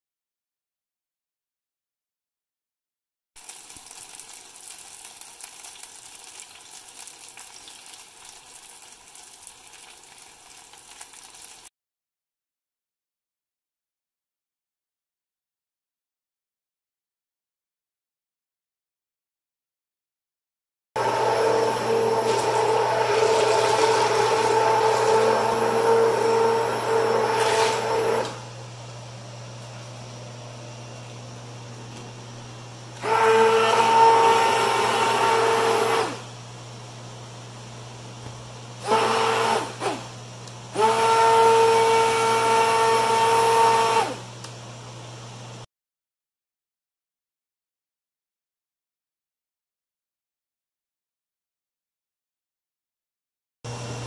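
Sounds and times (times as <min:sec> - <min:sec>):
fritters sizzling in deep oil: 0:03.4 - 0:11.7
hand blender motor whining: 0:21.0 - 0:28.5, 0:33.0 - 0:36.3, 0:38.8 - 0:40.1, 0:40.7 - 0:44.3.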